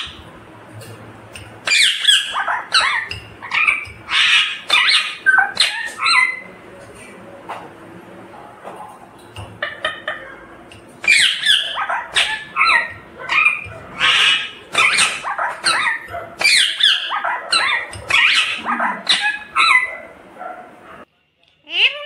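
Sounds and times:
parakeet squawking: 0.0s - 0.3s, 1.6s - 6.6s, 11.0s - 20.3s.

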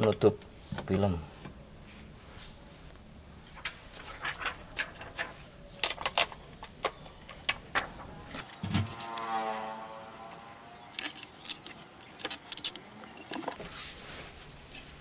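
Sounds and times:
tape crackles and clicks: 3.5s - 9.3s, 10.2s - 13.7s.

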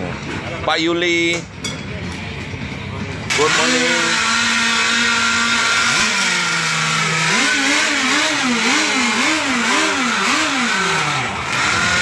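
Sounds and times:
model boat engine revving: 3.3s - 12.0s.

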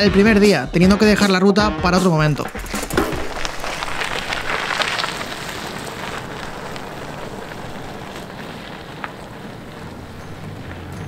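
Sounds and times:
bike tyres rolling on gravel: 2.5s - 11.0s.

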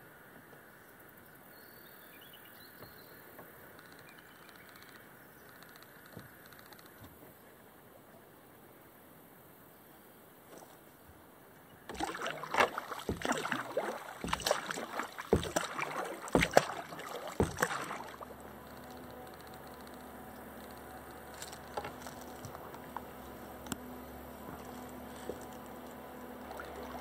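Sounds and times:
faint steady hum: 7.6s - 27.0s
paddle splashing in water: 11.8s - 27.0s
paddle knock: 11.9s - 27.0s.

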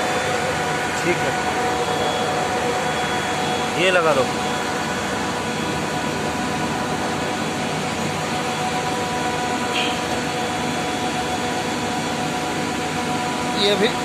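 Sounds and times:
chiller machinery drone: 0.0s - 14.0s.

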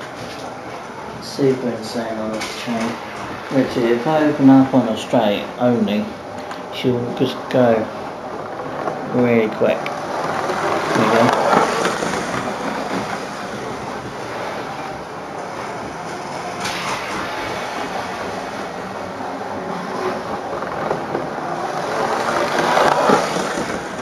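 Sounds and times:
wheels rattling over track joints: 0.0s - 24.0s.

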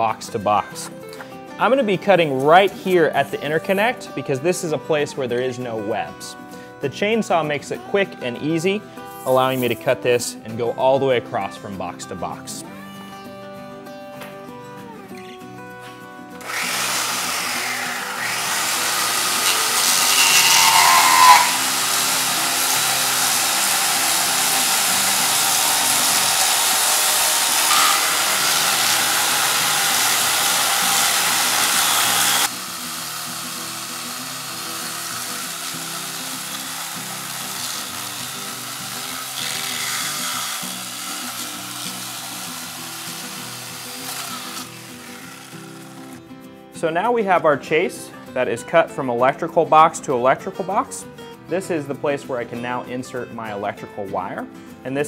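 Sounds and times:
electric chainsaw cutting foam: 16.4s - 46.2s.

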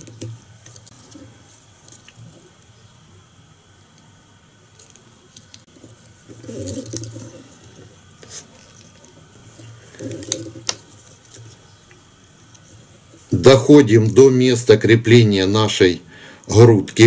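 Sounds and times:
line winding rustling: 0.0s - 3.0s, 4.6s - 14.3s.

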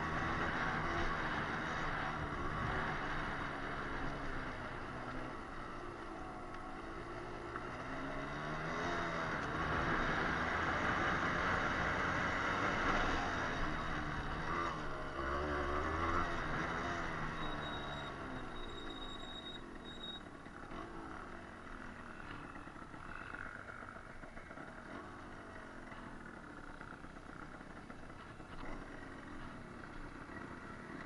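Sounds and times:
dirt bike engine revving: 6.7s - 31.0s.

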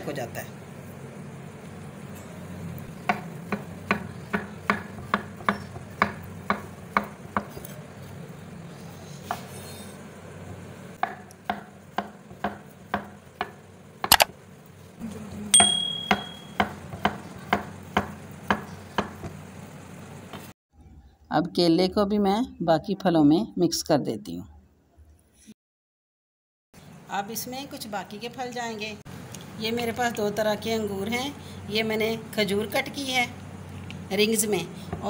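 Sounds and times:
short ringing note: 15.6s - 16.6s
knife tapping on cutting board: 15.6s - 19.4s.

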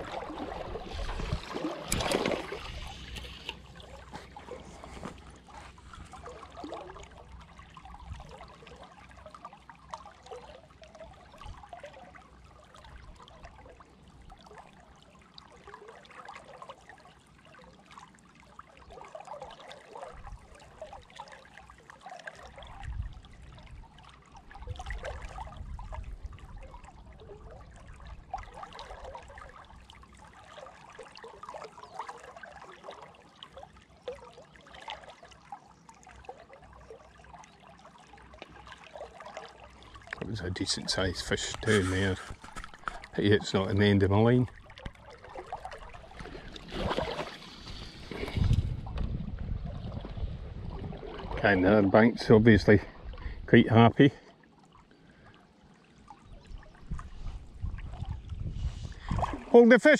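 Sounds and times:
river water lapping and gurgling: 0.0s - 59.9s.

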